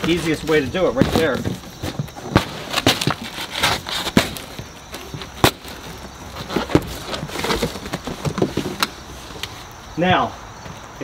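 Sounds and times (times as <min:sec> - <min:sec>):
cardboard box being torn open: 0:01.0 - 0:08.9
sharp cardboard snaps: 0:01.0 - 0:09.6.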